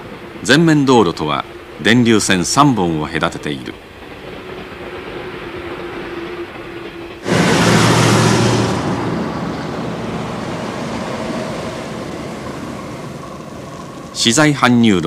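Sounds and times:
truck driving past: 7.2s - 14.2s.

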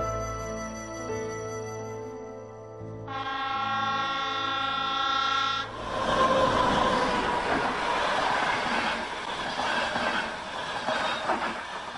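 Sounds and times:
held musical chord: 0.0s - 5.0s
train passing close by: 5.2s - 11.9s.

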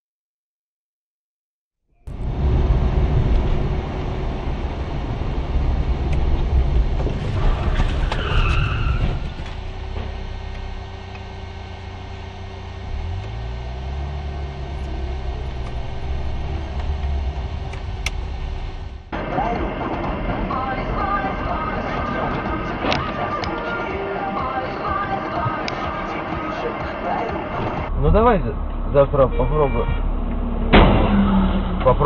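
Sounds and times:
car engine and road rumble: 2.0s - 32.0s
brief high squeal: 7.4s - 9.4s
click: 10.5s - 11.3s, 16.8s - 18.2s.

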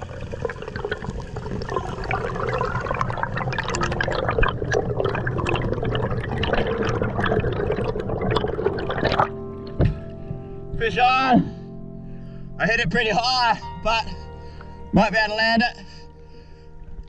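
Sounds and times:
underwater clicks and crackles: 0.0s - 10.1s
underwater bubbling and rushing: 0.0s - 10.2s.

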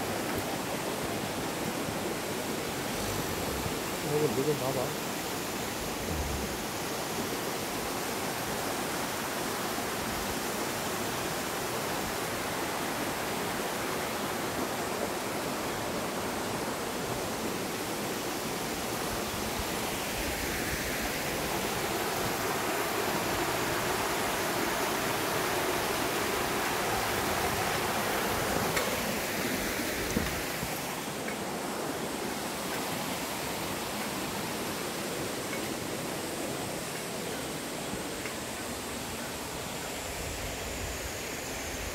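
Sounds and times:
stream water over rocks: 0.0s - 41.9s.

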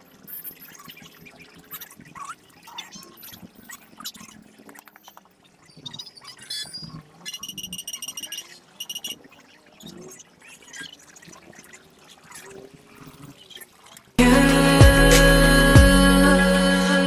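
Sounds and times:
loud music: 14.2s - 17.0s.

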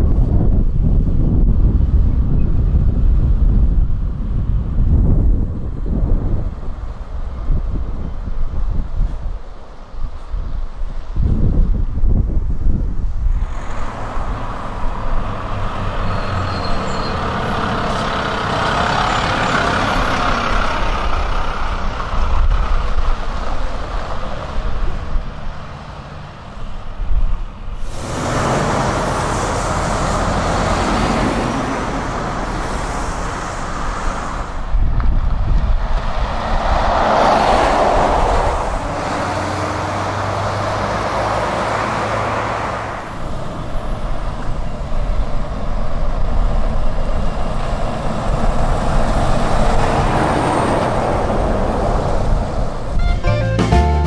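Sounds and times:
trucks driving past: 12.2s - 54.0s.

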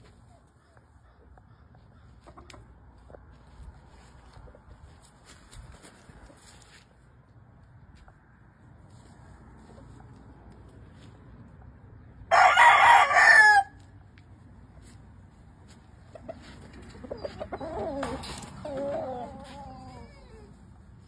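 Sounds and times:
faint chicken calls: 0.3s - 4.6s, 16.0s - 21.0s
rooster crowing: 12.3s - 13.8s.

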